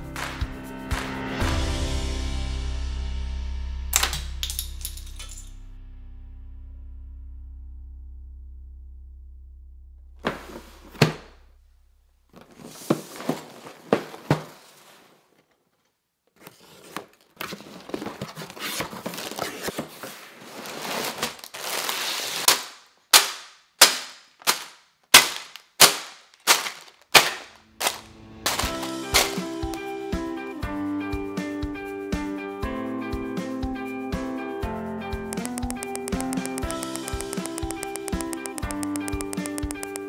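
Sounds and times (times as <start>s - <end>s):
music: 0.0s - 4.4s, 28.1s - 40.0s
pieces dropping on tabletop: 4.0s - 5.5s
plastic pieces rattling in bags: 26.2s - 29.5s.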